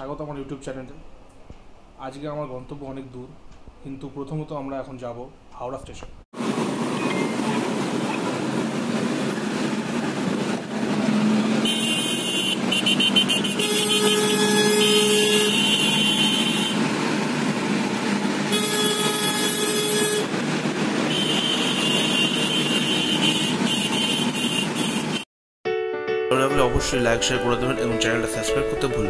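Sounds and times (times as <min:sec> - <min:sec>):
car engine and road noise: 0:06.4 - 0:25.3
long car horn blasts: 0:11.6 - 0:16.8, 0:18.4 - 0:20.4, 0:21.1 - 0:25.2.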